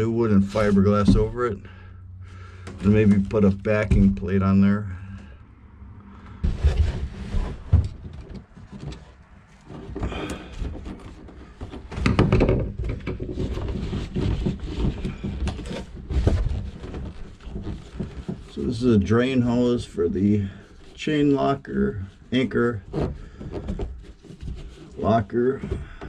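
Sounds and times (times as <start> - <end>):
hand knocking and scraping: 0.0 - 5.3, 6.2 - 26.0.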